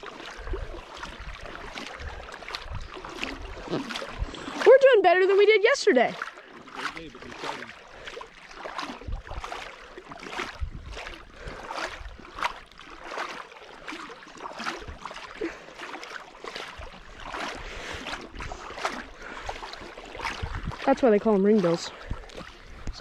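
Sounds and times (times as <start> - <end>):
footsteps splashing through water: 0.0 - 23.0.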